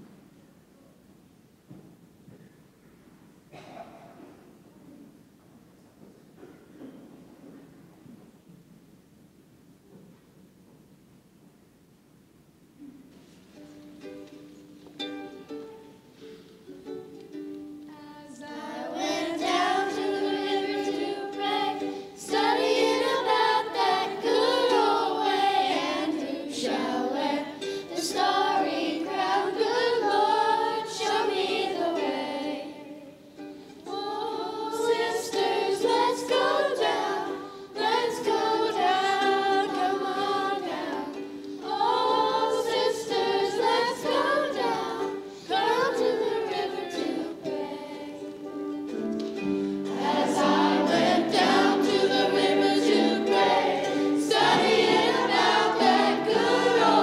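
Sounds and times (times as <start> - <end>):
plucked string accompaniment: 13.5 - 57.0
group singing: 17.9 - 49.0, 49.7 - 57.0.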